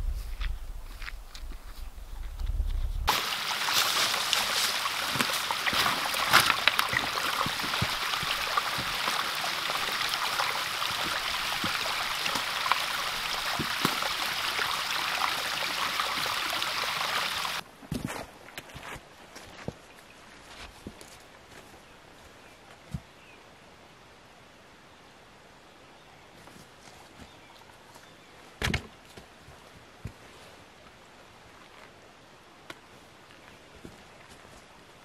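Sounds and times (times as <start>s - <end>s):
stream babbling over stones: 3.1s - 17.6s.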